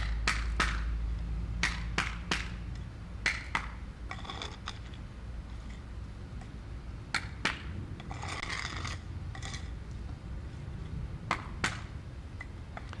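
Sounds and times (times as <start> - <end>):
board scraping over concrete: 3.6 - 5.8, 8.0 - 9.8.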